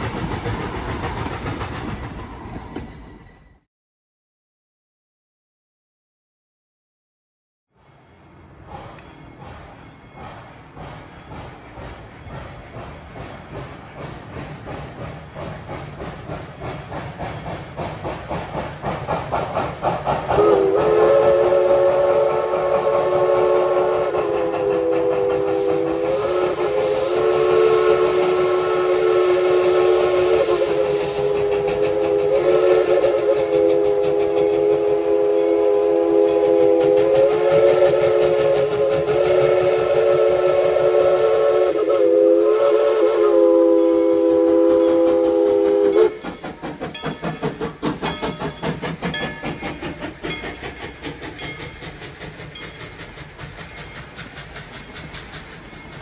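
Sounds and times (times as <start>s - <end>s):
steam train chugging: 0.0s - 3.6s, 7.8s - 56.0s
steam locomotive whistle: 19.9s - 54.4s.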